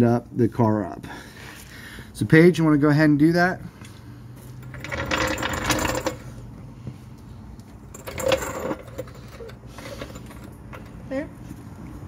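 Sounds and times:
floor jack wheels rattling on concrete: 4.6 - 6.4, 7.8 - 11.0.

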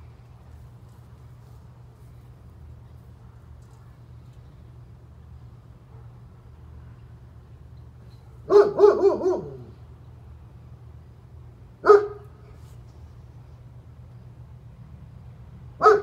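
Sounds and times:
dog barking: 8.4 - 9.7, 11.8 - 12.3, 15.8 - 16.0.

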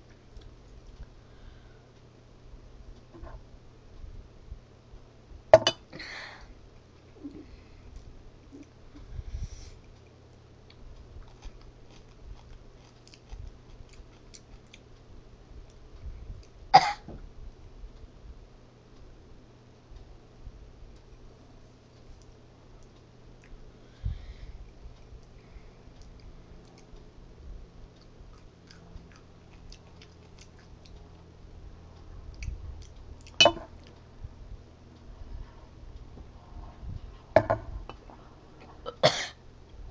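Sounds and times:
chewing clicks: 10.6 - 15.0, 25.0 - 27.1, 28.0 - 31.4, 32.3 - 34.0
girl coughing: 16.8 - 17.1, 38.9 - 39.4.

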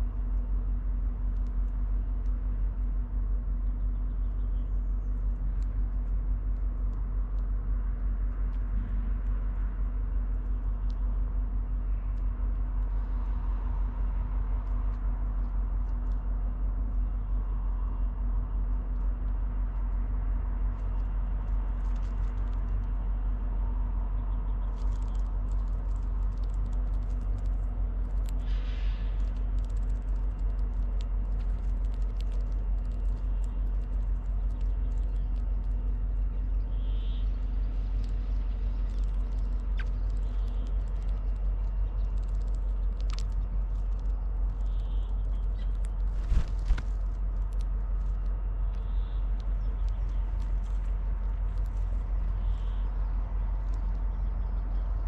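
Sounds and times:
low outdoor rumble: 0.0 - 55.0
faint ticks: 3.7 - 11.5, 24.1 - 55.0
bird calls: 36.3 - 42.3, 48.7 - 50.3, 52.3 - 53.1.

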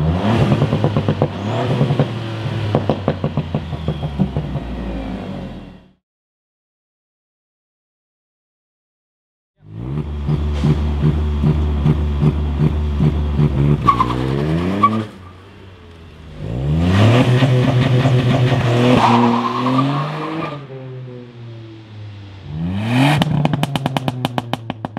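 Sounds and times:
car engine revving with exhaust pops: 0.0 - 5.3, 9.6 - 24.9.

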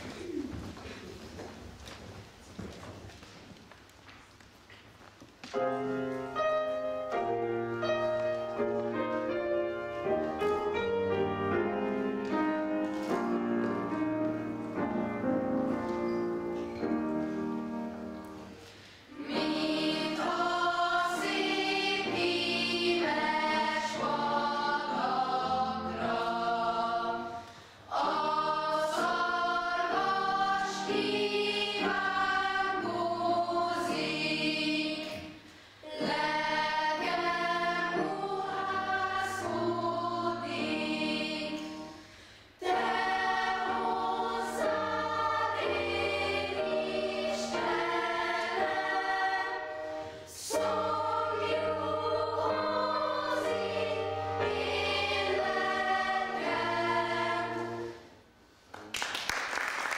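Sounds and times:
boys' choir singing: 19.1 - 41.9, 42.6 - 58.1.

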